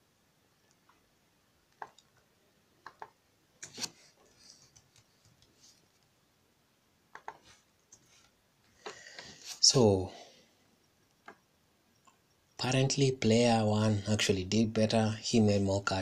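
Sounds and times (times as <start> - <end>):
keyboard and mouse clicks: 1.7 - 4.0, 7.1 - 8.1.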